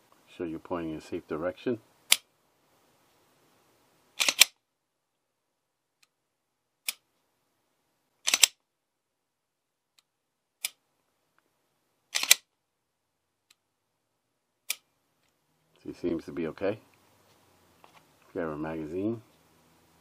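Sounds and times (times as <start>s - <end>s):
pistol slide racking clack: 4.2s - 4.5s, 8.3s - 8.6s, 12.2s - 12.4s.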